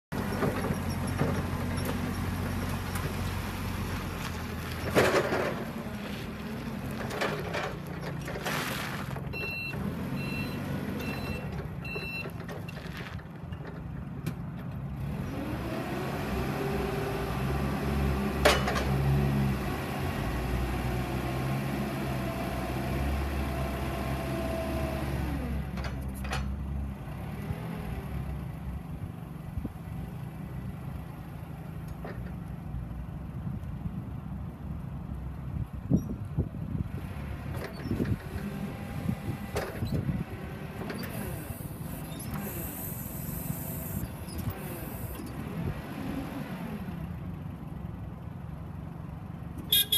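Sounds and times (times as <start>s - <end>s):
reversing beeps: 9.3s - 12.3s
forklift engine running: 37.2s - 49.9s.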